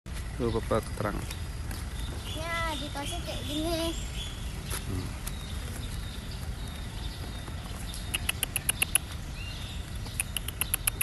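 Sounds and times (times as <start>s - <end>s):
small animal chirping clicks: 8.0s - 9.2s, 10.0s - 11.0s.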